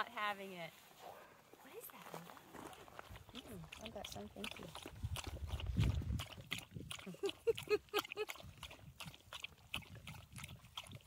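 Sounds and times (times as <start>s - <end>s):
dog lapping water from bowl: 2.5s - 11.0s.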